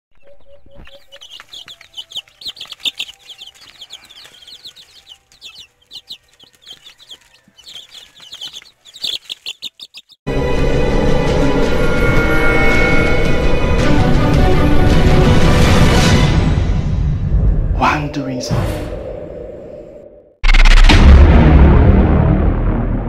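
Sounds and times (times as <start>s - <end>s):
chicks peeping: 0.2s - 10.2s.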